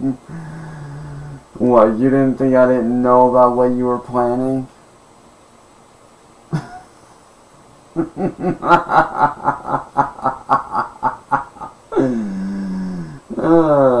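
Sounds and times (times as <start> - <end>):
man laughing mockingly: 6.5 - 7.1, 8.0 - 12.5.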